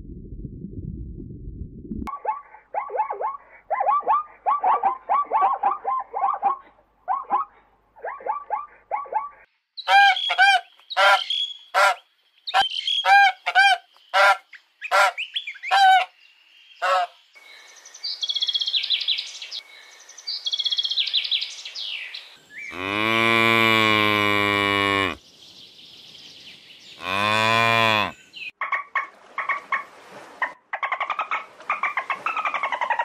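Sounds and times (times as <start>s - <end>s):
goose honking: 11.8s - 12.0s
cattle mooing: 22.7s - 25.2s, 27.0s - 28.2s.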